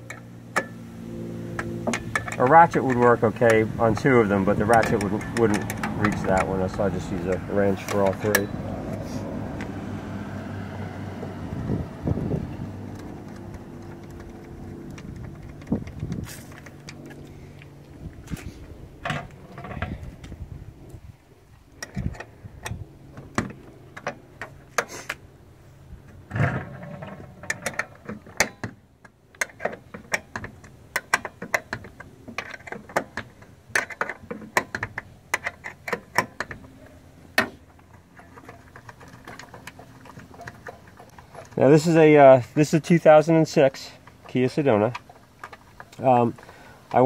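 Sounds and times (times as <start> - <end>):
wrench and bolts clinking: 1.8 - 8.7.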